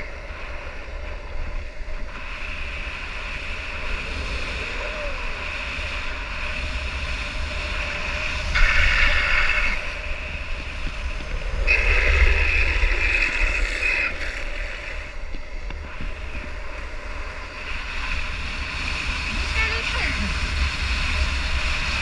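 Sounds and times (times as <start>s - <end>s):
skate wheels rolling on asphalt: 0.0s - 22.0s
wind rushing over microphone: 0.0s - 22.0s
skate wheels squealing: 7.5s - 15.8s.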